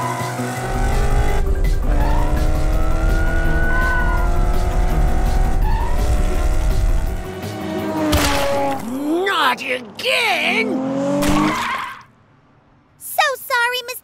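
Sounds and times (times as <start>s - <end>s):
background music: 0.0s - 11.1s
cartoon race car engine: 0.0s - 12.0s.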